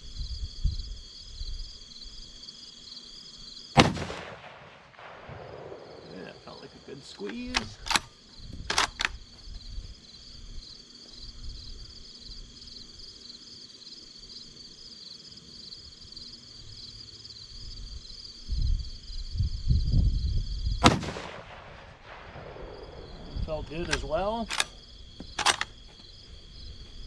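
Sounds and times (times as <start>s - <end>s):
rifle shot: 3.8s - 6.4s, 20.8s - 24.8s, 25.4s - 25.8s.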